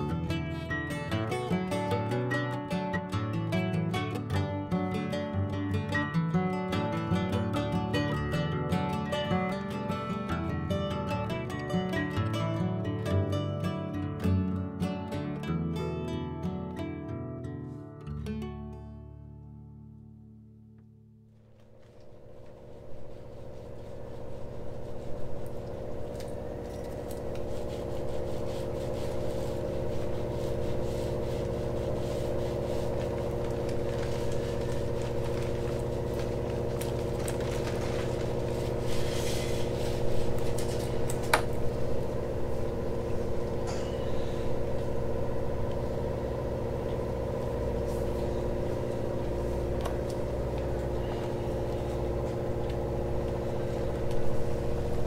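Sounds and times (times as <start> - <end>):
machine motor hum: 21.4 - 55.0.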